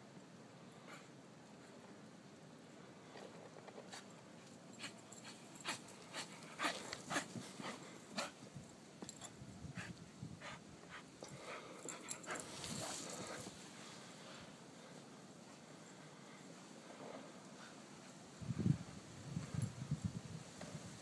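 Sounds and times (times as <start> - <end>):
dog panting: 4.8 - 8.4, 9.7 - 13.6.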